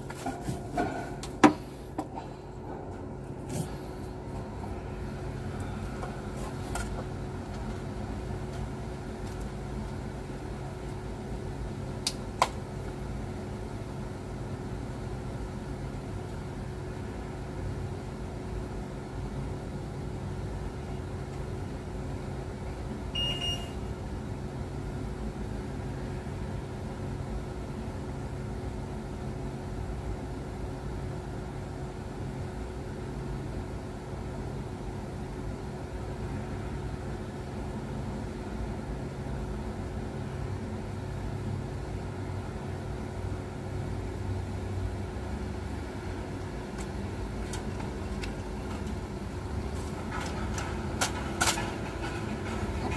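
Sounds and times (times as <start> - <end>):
steady machine hum: 0.0 - 52.9.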